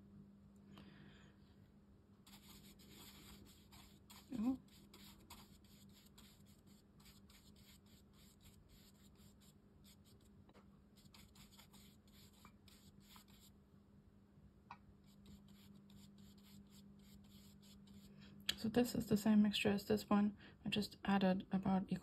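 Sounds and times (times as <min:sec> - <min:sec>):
steady low hum: 0:00.0 - 0:22.0
brush strokes on paper: 0:02.2 - 0:10.3, 0:10.9 - 0:13.5, 0:15.0 - 0:18.2.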